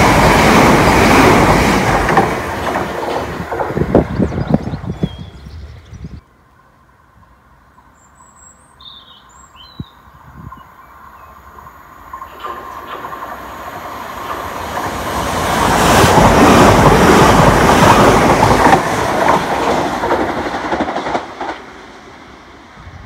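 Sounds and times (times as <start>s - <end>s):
train wheels rumbling and clattering: 0.0s - 5.1s, 12.1s - 22.4s.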